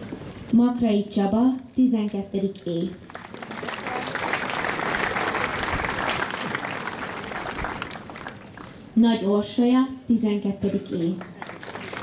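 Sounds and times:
audience applauding: 0:03.0 - 0:09.0, 0:11.2 - 0:12.0.

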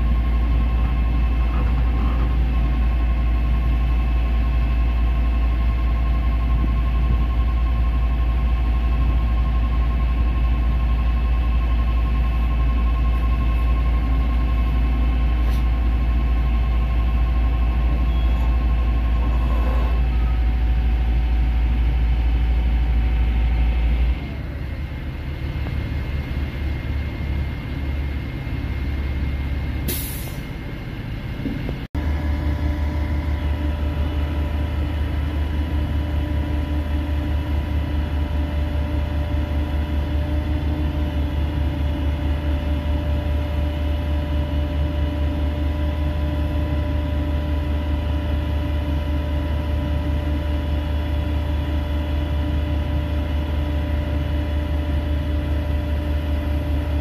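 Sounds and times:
diesel engine rumbling: 0:00.0 - 0:57.0
air hiss burst: 0:29.9 - 0:30.4.

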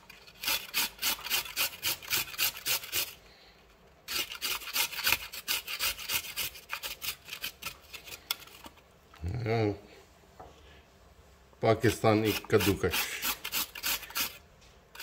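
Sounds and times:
carrot rasping on metal grater: 0:00.0 - 0:03.2, 0:04.1 - 0:08.3, 0:11.9 - 0:14.4.

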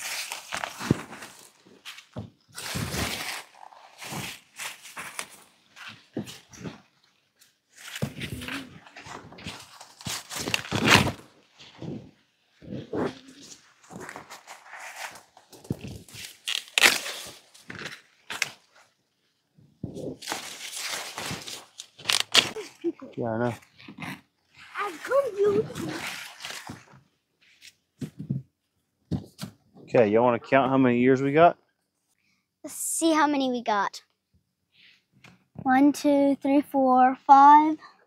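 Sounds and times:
corn stalks and leaves rustling: 0:00.0 - 0:06.9, 0:07.7 - 0:18.9, 0:19.9 - 0:23.7, 0:24.6 - 0:27.7
corn ears snapping off stalk: 0:15.6 - 0:18.6.

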